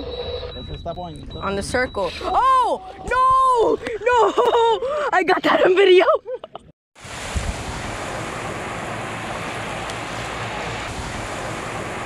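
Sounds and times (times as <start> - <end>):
person shouting: 2.2 - 4.3
sea water around boat: 7.0 - 12.0
wind on microphone: 7.0 - 12.0.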